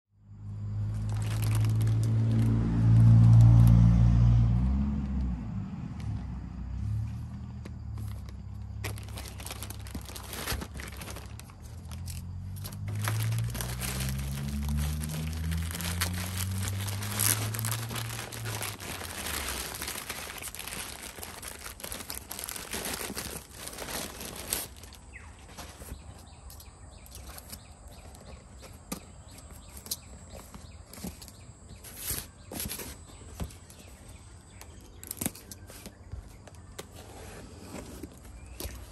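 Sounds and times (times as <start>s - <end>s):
packaging crinkling: 0.9s - 3.8s, 8.0s - 28.3s.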